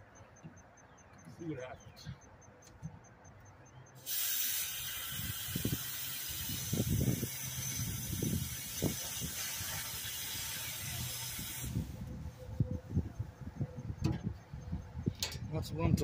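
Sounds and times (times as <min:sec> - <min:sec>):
compressed air hissing: 0:04.0 - 0:12.1.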